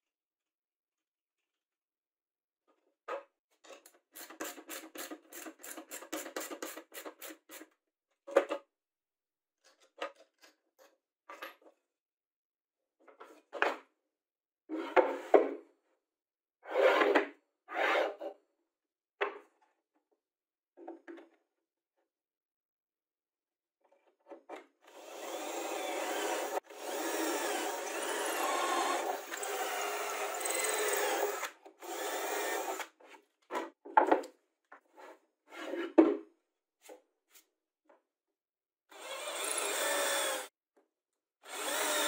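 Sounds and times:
knocks and scrapes of wood and metal: 0:13.0 - 0:13.9, 0:14.7 - 0:15.7, 0:16.7 - 0:18.3, 0:33.0 - 0:37.5.

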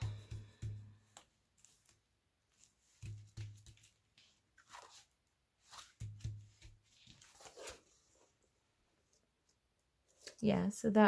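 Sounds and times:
paper rustling and crinkling: 0:01.1 - 0:08.4.

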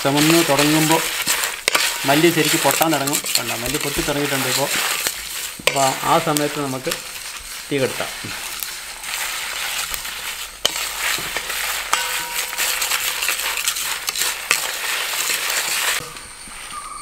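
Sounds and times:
seeds popping: 0:00.0 - 0:16.2
spices sizzling and crackling: 0:00.0 - 0:17.0
crickets chirping: 0:16.0 - 0:17.0.

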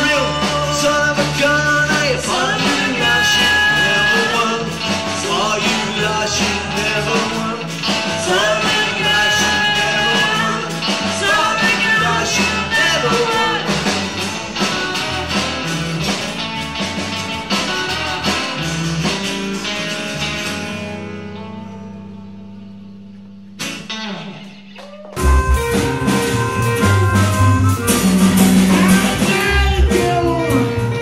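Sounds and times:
man singing: 0:00.0 - 0:14.1, 0:28.6 - 0:31.0
drums: 0:00.0 - 0:31.0
electric bass: 0:00.0 - 0:31.0.

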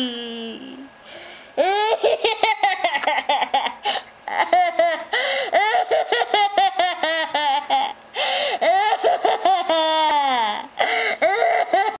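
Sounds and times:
toddler laughing: 0:01.6 - 0:08.0, 0:08.6 - 0:10.6.

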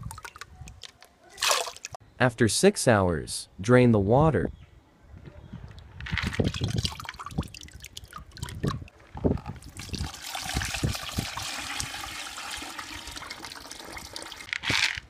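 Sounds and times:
water pouring in trickling stream: 0:01.4 - 0:01.9, 0:06.4 - 0:14.5.

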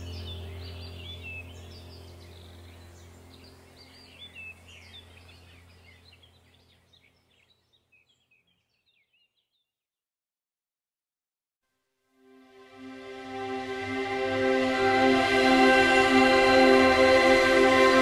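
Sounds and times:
low steady drone: 0:00.0 - 0:06.9, 0:12.3 - 0:18.0
small birds chirping: 0:00.0 - 0:09.8.

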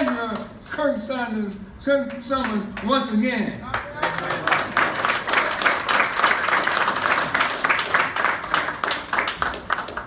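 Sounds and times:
crowd applauding: 0:03.7 - 0:10.0.

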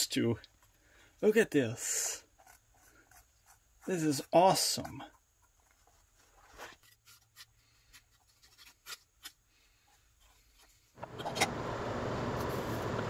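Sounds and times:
wooden stick scraping paint: 0:01.8 - 0:09.4.

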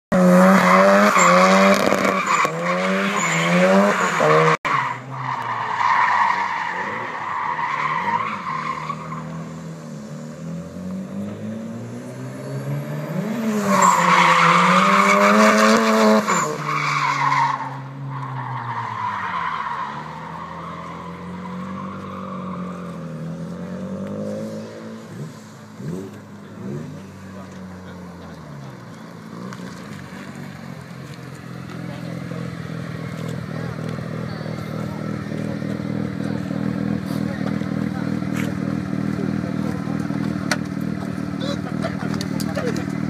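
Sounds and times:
rotary engine revving: 0:00.2 - 0:43.0
tyres squealing on tarmac: 0:00.6 - 0:10.3, 0:13.5 - 0:23.2.

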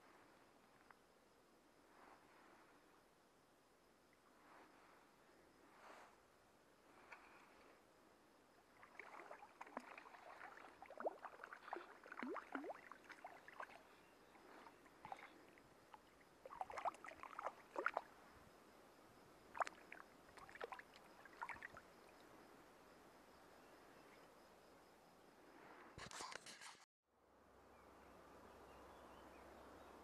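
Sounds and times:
fish splashing in water: 0:08.8 - 0:13.9, 0:14.6 - 0:18.1.

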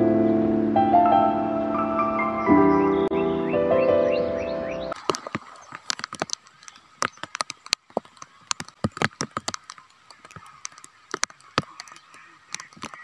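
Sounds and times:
piano music: 0:00.0 - 0:05.0.

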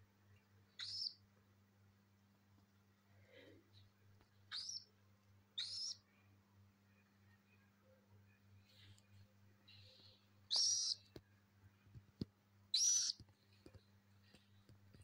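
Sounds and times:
cockatiel shrill calls: 0:00.8 - 0:01.2, 0:04.5 - 0:04.8, 0:05.6 - 0:06.0, 0:10.5 - 0:11.0, 0:12.7 - 0:13.2.

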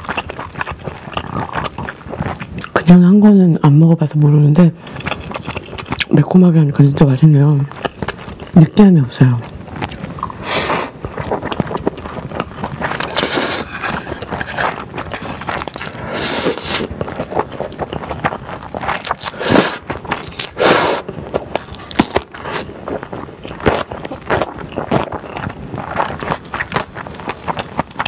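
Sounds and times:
slurping noodles: 0:00.0 - 0:02.8, 0:04.7 - 0:06.1, 0:09.5 - 0:28.0
wet chewing: 0:00.0 - 0:28.0.

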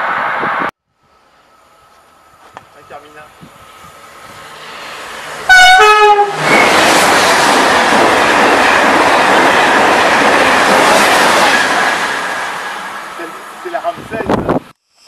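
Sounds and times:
train rushing past: 0:00.0 - 0:14.6
two-note train horn: 0:05.5 - 0:06.4.

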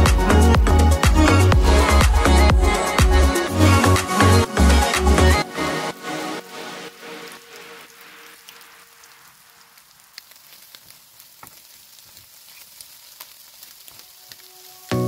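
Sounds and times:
music track: 0:00.0 - 0:09.0, 0:14.1 - 0:15.0
egg sizzling in frying pan: 0:06.9 - 0:15.0.

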